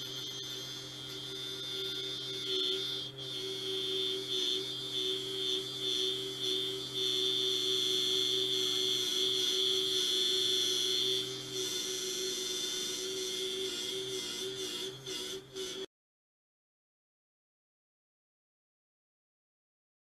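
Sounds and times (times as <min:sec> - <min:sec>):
high motor whine: 0:00.0 - 0:15.9.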